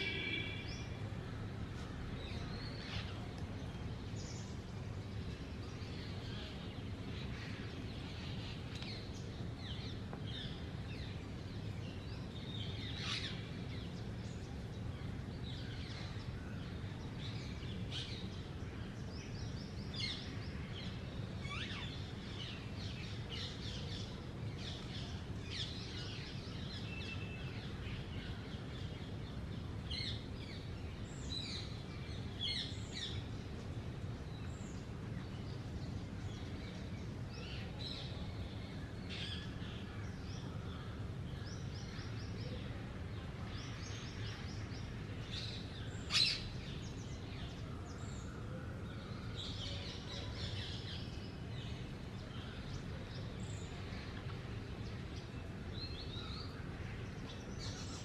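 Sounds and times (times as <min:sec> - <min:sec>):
birds chirping: 0:00.0 - 0:01.2.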